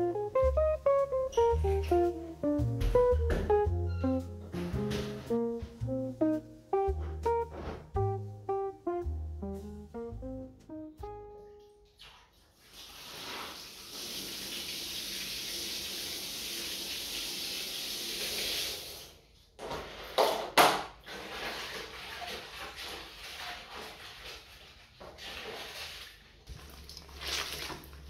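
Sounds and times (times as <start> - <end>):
water running: 0.0 - 20.3, 21.0 - 28.0
water splashing in plastic basin: 19.8 - 28.0.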